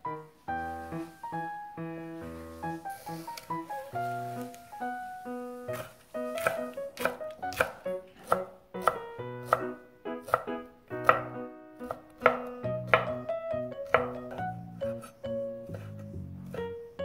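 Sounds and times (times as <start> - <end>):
knife chopping on wooden board: 5.7 - 13.2, 13.8 - 15.1.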